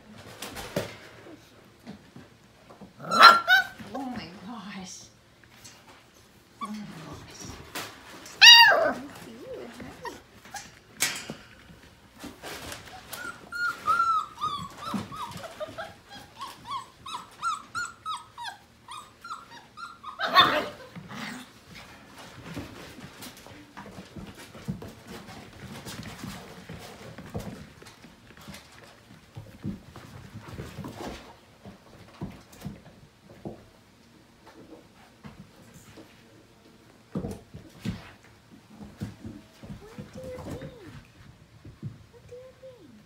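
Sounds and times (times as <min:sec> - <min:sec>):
puppies yelping and whining: 0:03.0 - 0:03.8, 0:08.3 - 0:10.8, 0:12.6 - 0:21.6.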